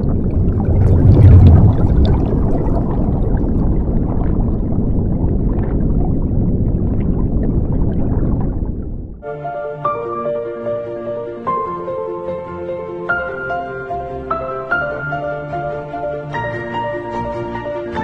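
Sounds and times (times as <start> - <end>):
underwater rushing and bubbling: 0.0 - 9.2
soft music with held notes: 9.2 - 18.0.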